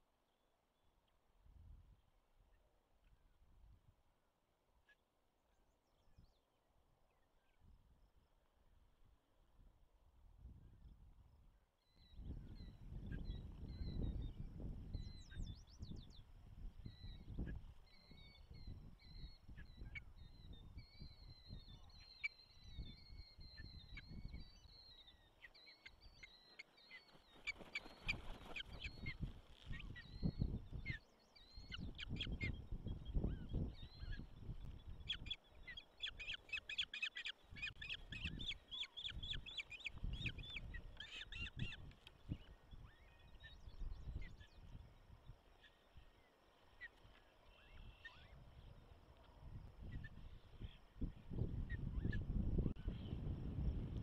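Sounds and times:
wingbeats: 26.2s - 30.0s.

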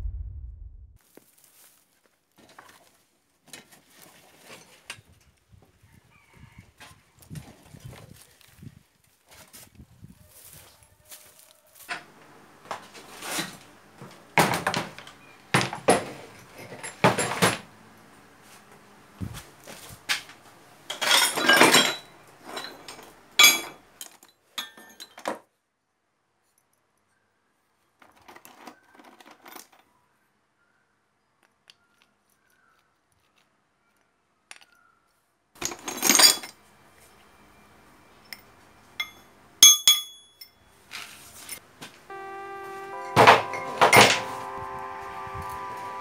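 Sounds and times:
metal parts clinking: 20.9s - 25.3s, 35.6s - 36.6s
music: 42.1s - 46.0s.

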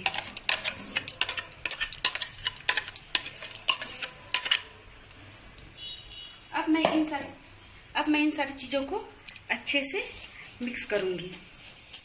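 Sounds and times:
metal spoon scraping a steel jar: 0.0s - 4.8s.

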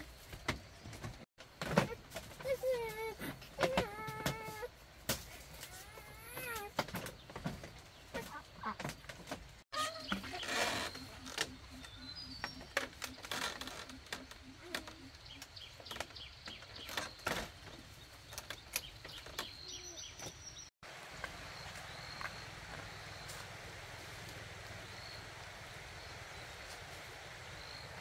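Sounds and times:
birds chirping: 5.9s - 23.8s.

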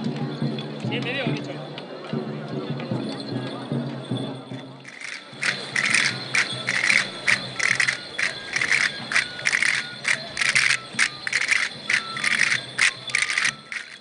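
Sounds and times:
wooden castanets clattering: 4.9s - 14.0s.

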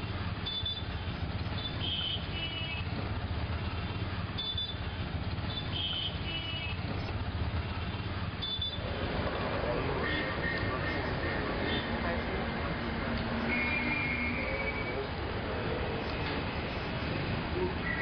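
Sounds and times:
street traffic rumble: 0.0s - 18.0s
short high-pitched beeps: 8.4s - 8.8s.

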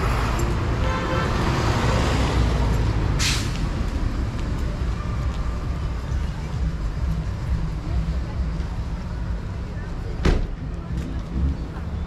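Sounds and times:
passing cars rumble: 0.0s - 12.0s
short hiss: 3.2s - 3.6s.

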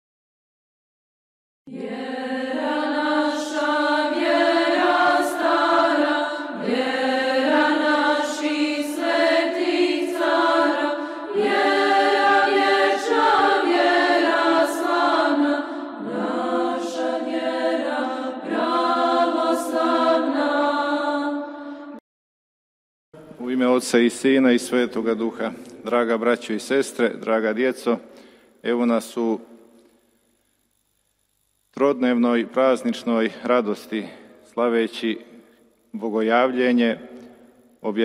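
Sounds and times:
choir singing slow chant: 1.7s - 22.0s.

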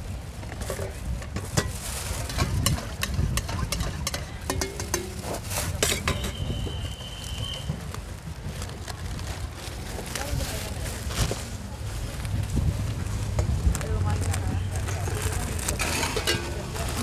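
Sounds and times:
spoon stirring in a bowl: 1.5s - 6.4s, 15.8s - 16.8s.

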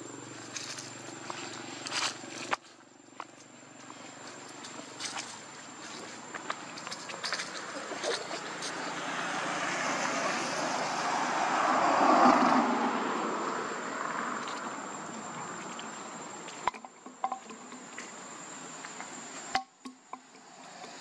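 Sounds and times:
vehicle passing by: 0.0s - 2.6s, 3.7s - 16.6s
high insect-like whine: 0.0s - 21.0s.

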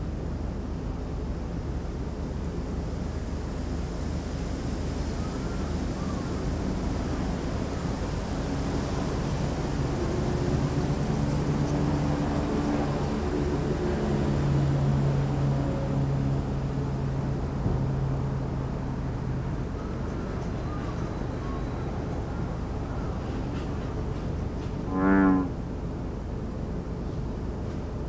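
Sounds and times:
distant engine droning: 0.0s - 28.0s
outdoor background noise: 0.0s - 28.0s.

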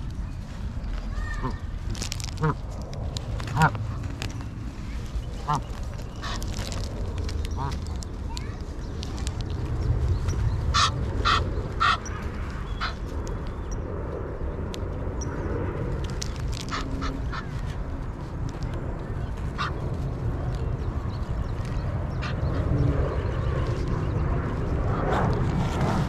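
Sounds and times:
steady low rumble: 0.0s - 26.0s
ducks quacking: 2.3s - 2.6s, 3.5s - 4.0s, 5.4s - 6.6s, 7.5s - 7.8s, 10.7s - 12.1s.

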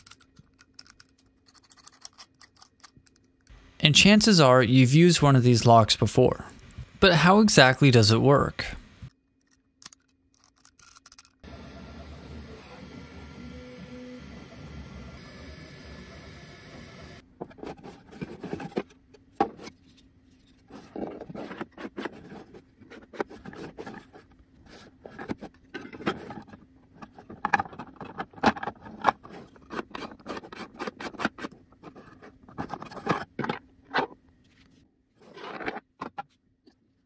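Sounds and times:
plastic parts clicking on wooden table: 9.4s - 11.4s
printer humming: 11.4s - 17.2s.

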